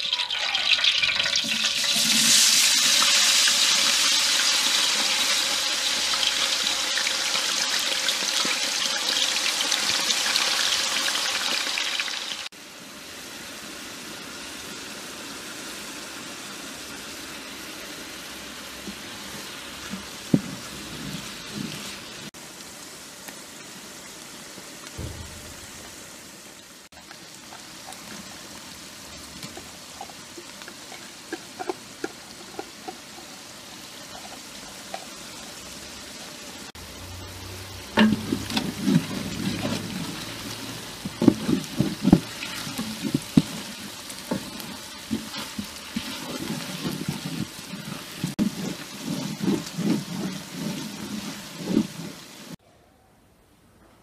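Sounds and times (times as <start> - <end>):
onion sizzling in hot oil: 0.0 - 52.6
wooden paddle knocking pot: 38.0 - 52.2.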